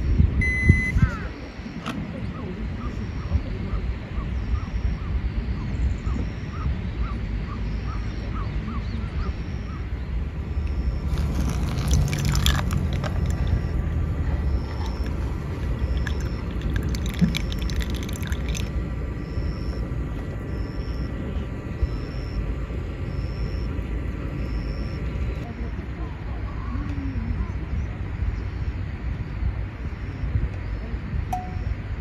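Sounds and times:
faint chirps: 0:00.0 - 0:31.8
low steady rumble: 0:00.0 - 0:32.0
hot water pouring into dripper: 0:11.1 - 0:13.8, 0:14.7 - 0:18.7.

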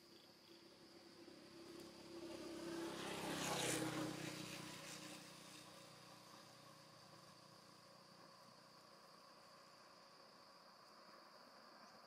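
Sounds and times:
motor vehicle passing by: 0:01.0 - 0:08.5.

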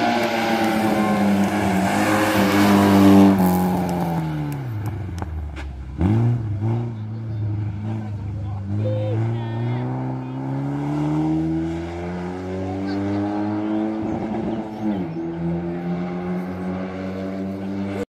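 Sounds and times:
race car engine revving: 0:00.0 - 0:18.0.

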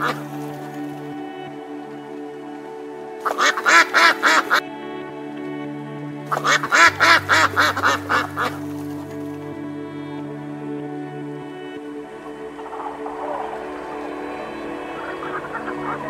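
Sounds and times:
background music: 0:00.0 - 0:16.0
waterfowl quacking: 0:03.2 - 0:04.6, 0:06.3 - 0:08.6, 0:12.4 - 0:16.0.

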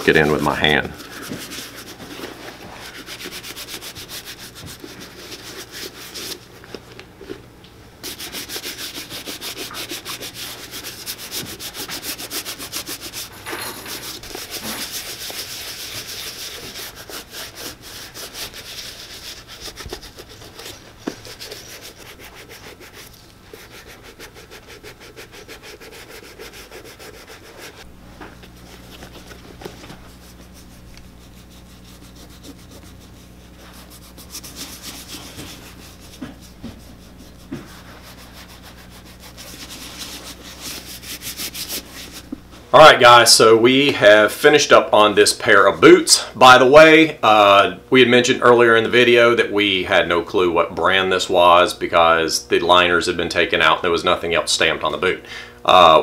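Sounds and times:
gloved hand rubbing leather boot: 0:00.1 - 0:07.4, 0:08.0 - 0:43.2.

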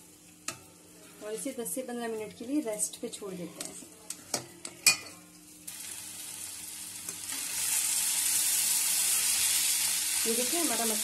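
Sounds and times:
food sizzling in oil: 0:04.8 - 0:11.0.

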